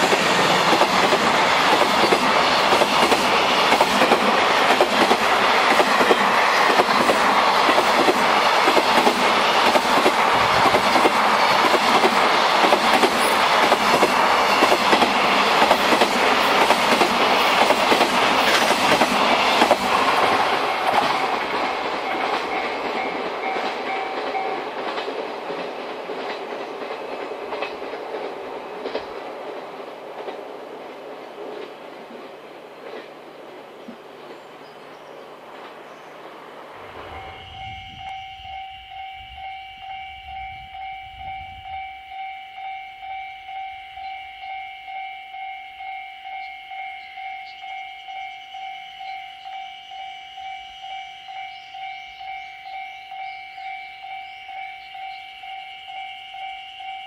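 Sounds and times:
train wheels clacking over rails: 0.0 - 30.6
level-crossing warning bell: 14.2 - 25.0, 36.8 - 57.0.

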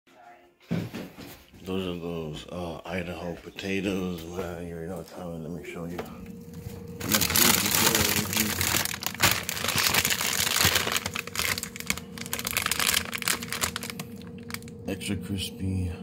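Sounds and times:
faint steady hum: 1.6 - 16.0
plastic bag crinkling: 6.9 - 14.7.

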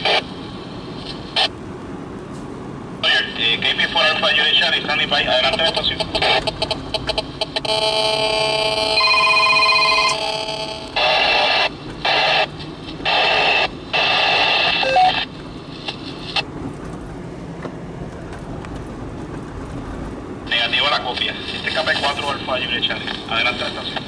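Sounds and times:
electronic radio tone: 0.0 - 0.3, 5.3 - 15.3
radio static bursts: 0.0 - 0.3, 3.0 - 8.9, 10.2 - 16.5, 20.5 - 24.0
faint radio hiss: 10.8 - 16.4, 20.5 - 24.0.

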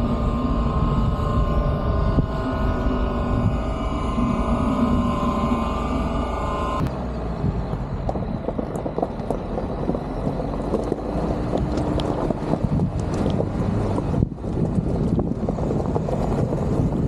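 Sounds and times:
car driving on dirt road: 0.0 - 17.0
tyres rolling over loose gravel: 7.7 - 17.0.

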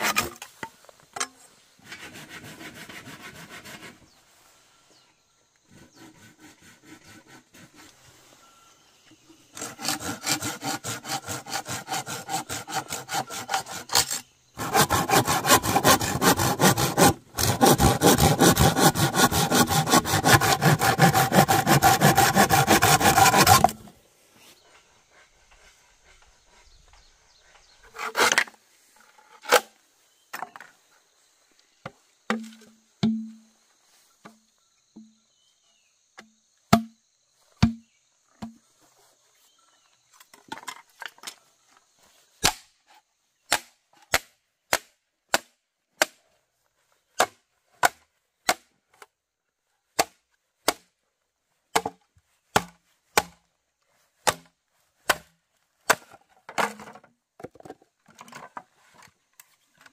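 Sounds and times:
wood chopping strikes: 32.3 - 33.4, 36.2 - 37.0, 37.6 - 38.6, 42.4 - 42.7, 43.5 - 46.2, 47.2 - 48.7, 50.0 - 50.9, 51.7 - 53.4, 54.2 - 56.9.

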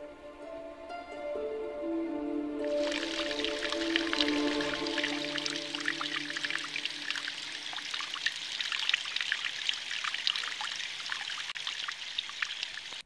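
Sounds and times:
water trickling and dripping: 2.6 - 13.0.

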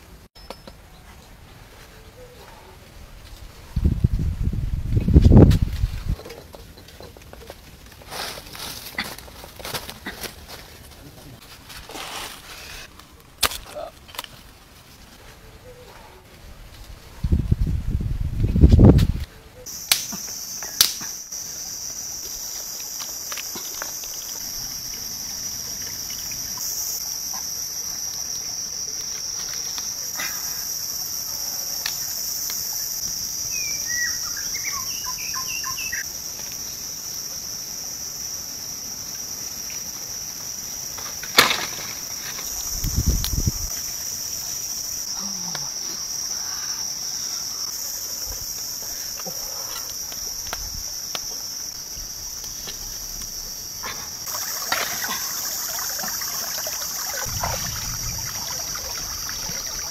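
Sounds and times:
insects buzzing: 19.6 - 59.9.

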